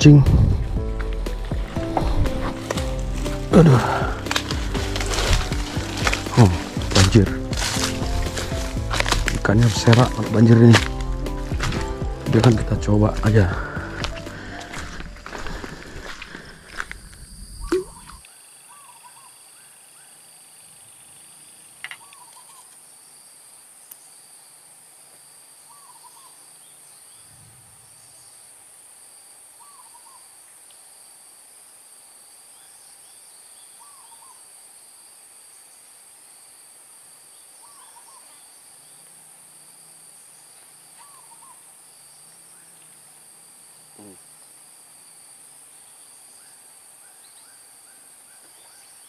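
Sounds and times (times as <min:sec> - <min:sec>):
bird calling: 0:17.3 - 0:20.1, 0:21.8 - 0:22.7, 0:25.7 - 0:26.4, 0:29.6 - 0:30.3, 0:33.8 - 0:34.4, 0:37.6 - 0:38.6, 0:40.9 - 0:41.7.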